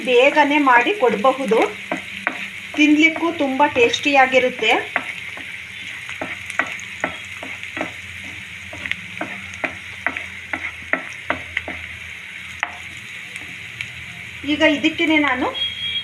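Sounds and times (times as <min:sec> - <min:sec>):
onions sizzling in hot oil: 0:00.0 - 0:16.0
spatula scraping a pan: 0:04.5 - 0:11.8.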